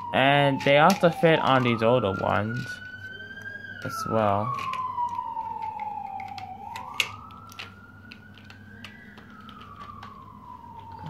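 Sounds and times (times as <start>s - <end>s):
siren wailing: 0.0s - 11.0s
plastic toy pieces clicking: 0.5s - 2.9s, 3.8s - 10.2s.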